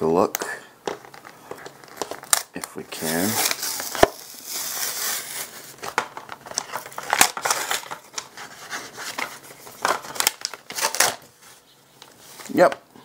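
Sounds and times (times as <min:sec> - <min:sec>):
cardboard and foam ripping: 0:03.0 - 0:05.8.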